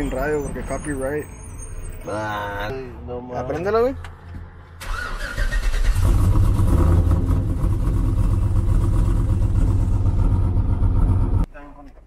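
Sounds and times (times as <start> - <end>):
engine accelerating hard: 4.8 - 11.5.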